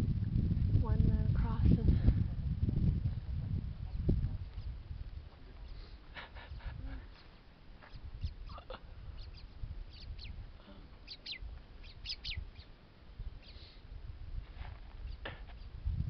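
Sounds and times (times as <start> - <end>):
low uneven rumble: 0.0 - 16.0
short high chirping calls: 7.2 - 8.6, 9.2 - 10.4, 11.0 - 12.7, 13.4 - 13.7, 15.0 - 15.7.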